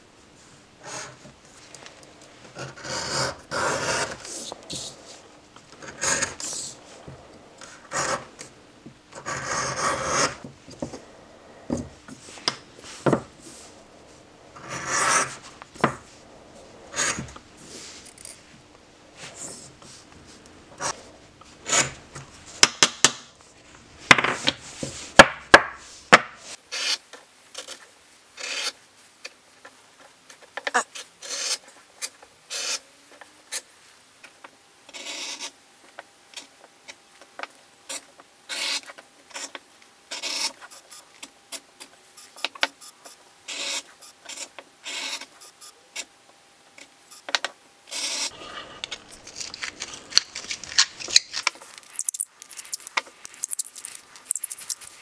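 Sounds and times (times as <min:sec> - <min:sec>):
edge beveler scraping leather: 0:02.6 - 0:05.0, 0:05.8 - 0:06.8, 0:07.9 - 0:08.3, 0:09.2 - 0:10.5, 0:14.6 - 0:15.4, 0:38.5 - 0:39.5, 0:40.1 - 0:40.6.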